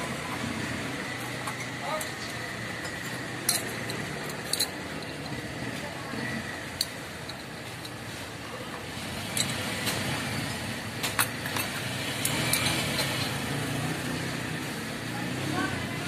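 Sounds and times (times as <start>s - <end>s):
metal parts clinking: 1.9s - 5.4s, 6.7s - 8.0s, 9.3s - 10.0s, 11.1s - 13.4s.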